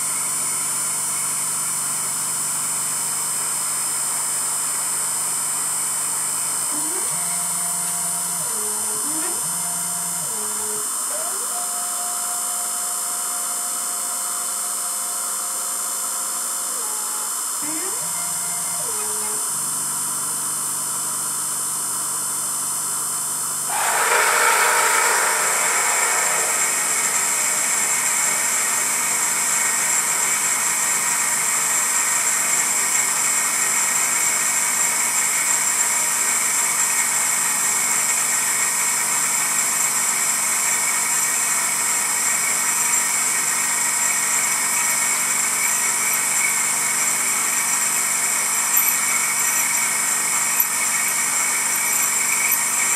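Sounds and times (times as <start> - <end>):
drill cutting cast iron: 6.7 - 15.8, 23.7 - 31.6
milling machine hum: 6.7 - 20.0, 23.7 - 31.6.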